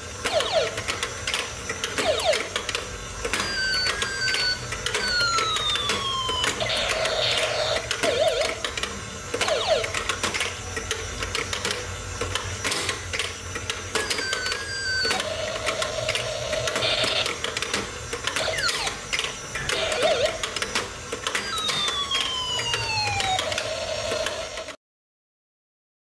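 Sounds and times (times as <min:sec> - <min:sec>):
electronic toy chirps and whistles: 0:03.4 - 0:08.8, 0:14.0 - 0:15.9, 0:18.4 - 0:20.5, 0:21.3 - 0:24.0.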